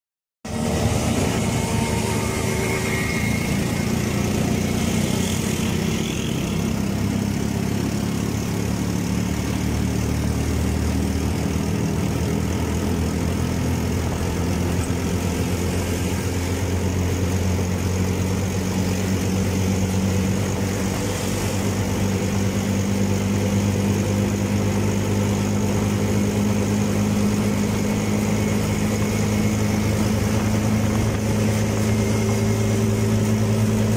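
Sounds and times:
road and traffic noise: 0:00.4 - 0:33.9
motorcycle engine cruising: 0:00.5 - 0:33.9.

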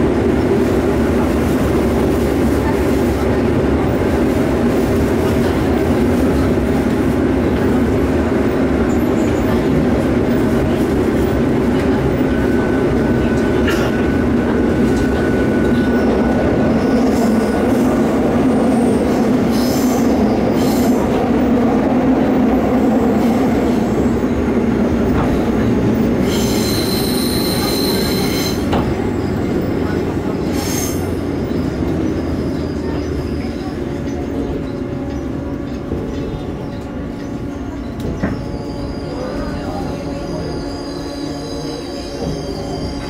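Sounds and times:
train wheels rumbling on rail: 0:00.0 - 0:43.0
high-pitched wheel squeals: 0:26.2 - 0:28.7, 0:38.2 - 0:43.0.

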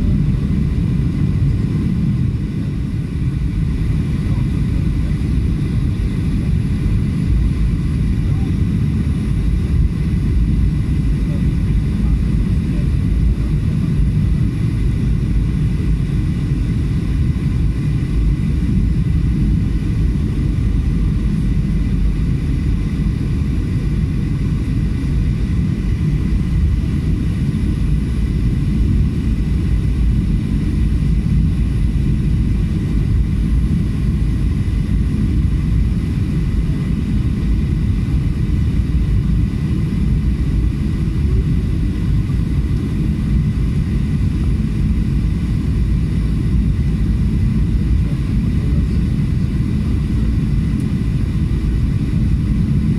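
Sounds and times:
rushing airflow: 0:00.0 - 0:11.1
jet engine rumble: 0:00.0 - 0:52.9.

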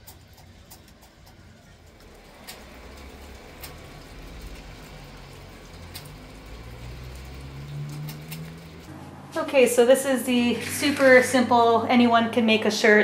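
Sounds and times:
drips tapping: 0:01.9 - 0:08.9
steady rain falling: 0:02.0 - 0:08.9.

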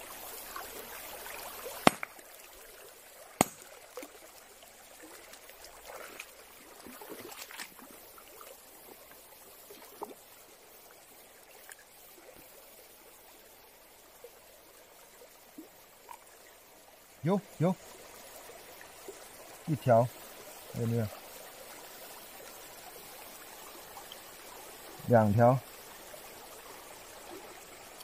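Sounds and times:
water splashing and trickling: 0:00.0 - 0:28.0
sledgehammer striking stone: 0:01.8 - 0:02.1, 0:03.4 - 0:03.7.

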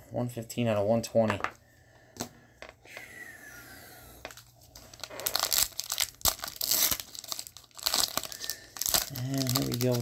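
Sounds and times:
foil wrapper tearing and crinkling: 0:04.7 - 0:10.0.

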